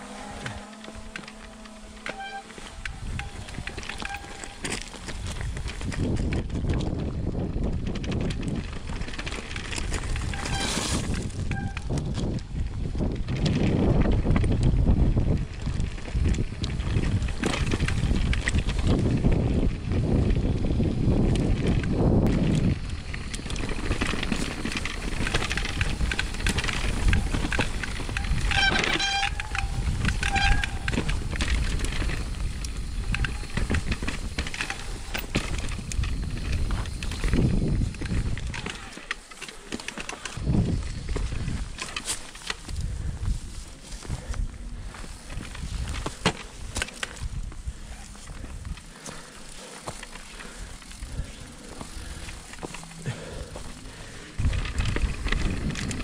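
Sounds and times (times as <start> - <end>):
bike rattling: 0.0 - 56.0
tyre rumble: 0.0 - 56.0
wind on microphone: 2.6 - 39.0, 40.3 - 56.0.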